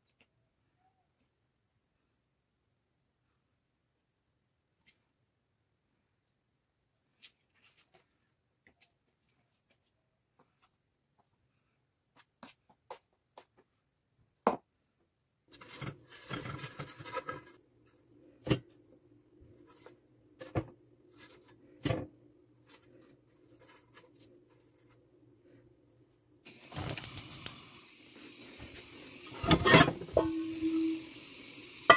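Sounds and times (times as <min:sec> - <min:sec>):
cloth rustling against metal pot: 0:15.5 - 0:17.9, 0:22.6 - 0:25.1, 0:28.5 - 0:31.1.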